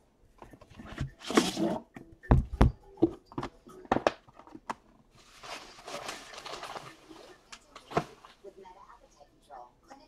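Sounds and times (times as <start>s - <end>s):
briefcase sliding scrape: 1.0s - 1.9s.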